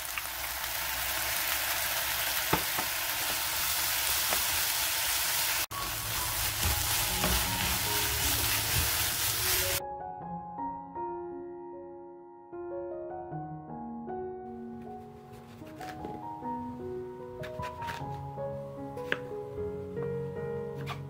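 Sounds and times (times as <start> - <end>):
vegetables sizzling in oil: 0.0 - 9.8
piano music: 5.6 - 21.0.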